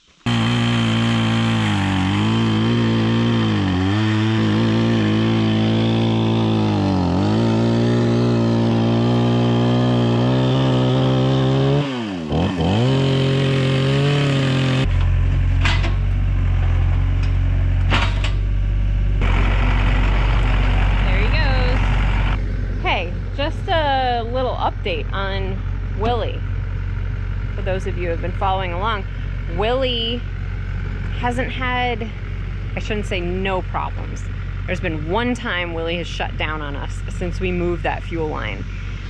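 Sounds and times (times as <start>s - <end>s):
deep rough engine rumble: 0.0s - 39.0s
sawmill engine running hard: 0.3s - 15.2s, 19.1s - 39.0s
engine knocks: 12.7s - 39.0s.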